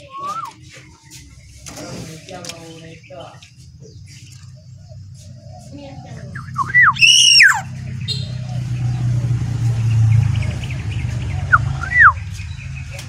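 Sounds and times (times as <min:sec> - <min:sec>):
bird whistled call: 0:00.0 - 0:00.8, 0:05.6 - 0:08.6, 0:11.5 - 0:12.3
low steady rumble: 0:00.0 - 0:13.0.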